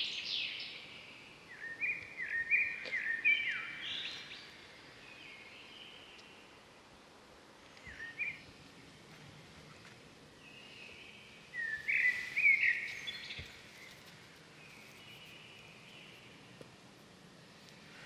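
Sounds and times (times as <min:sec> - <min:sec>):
faint outdoor background: 0:00.0 - 0:18.0
birds chirping: 0:10.4 - 0:16.5.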